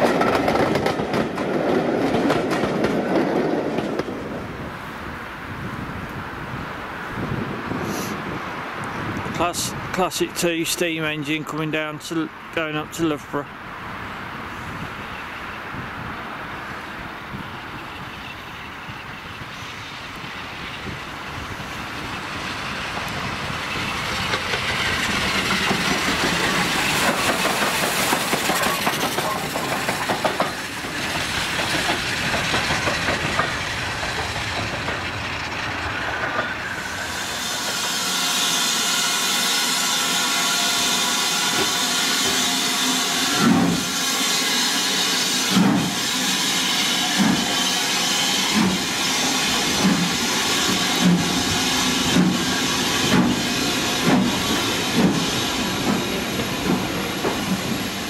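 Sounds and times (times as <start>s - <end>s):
train thuds: 0.0s - 4.3s, 22.9s - 36.6s, 45.5s - 46.1s, 46.9s - 47.7s, 48.5s - 58.0s
steam locomotive rumble: 0.0s - 13.5s, 14.2s - 58.0s
steam hissing: 18.7s - 58.0s.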